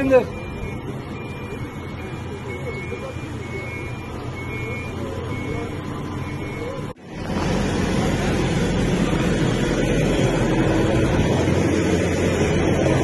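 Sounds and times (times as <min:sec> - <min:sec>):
reversing beeper beep: 0:00.0 - 0:06.9
diesel engine running: 0:00.0 - 0:13.0.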